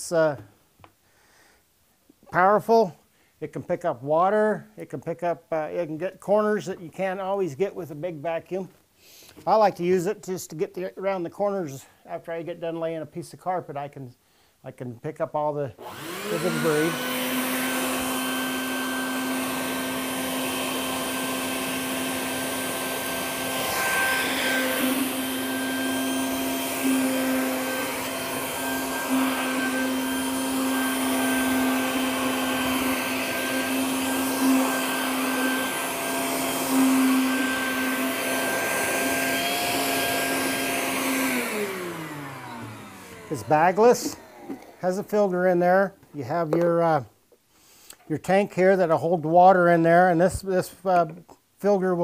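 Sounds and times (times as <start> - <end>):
vacuum motor winding down: 15.8 - 45.2
shop vacuum motor hum: 15.8 - 45.3
vacuum nozzle sucking debris: 15.8 - 45.3.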